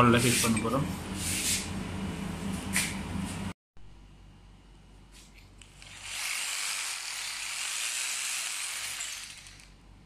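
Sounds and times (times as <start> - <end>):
electric drill hissing into wall: 5.6 - 9.8.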